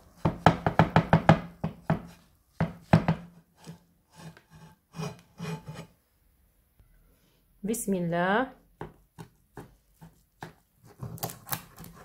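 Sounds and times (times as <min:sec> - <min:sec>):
frying pan knocking on wooden board: 0:00.2 - 0:03.3.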